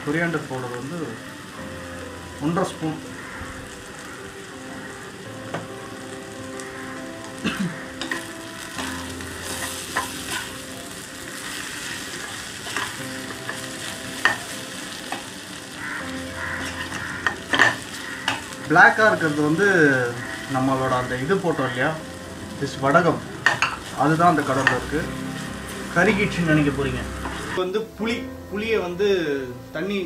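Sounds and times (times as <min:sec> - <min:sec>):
spices and onions sizzling in oil: 0:00.0 - 0:30.0
metal spoon scraping pan: 0:08.0 - 0:10.6, 0:16.6 - 0:18.5.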